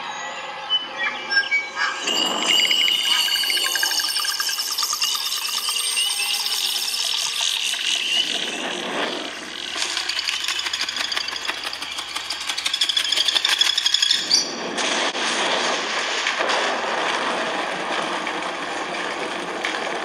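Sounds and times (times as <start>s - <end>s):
high chirping trills: 1.1s - 14.4s.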